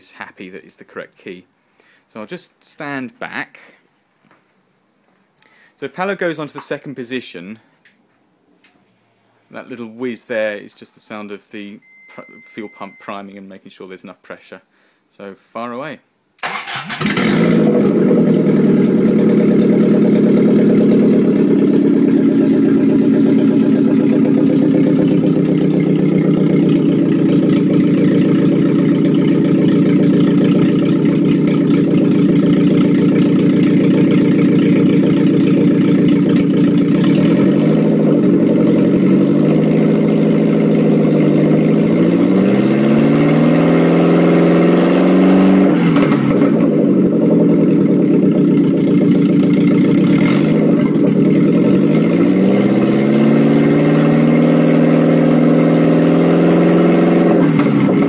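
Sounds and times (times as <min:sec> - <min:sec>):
car engine idling and revving: 0:16.8 - 0:58.0.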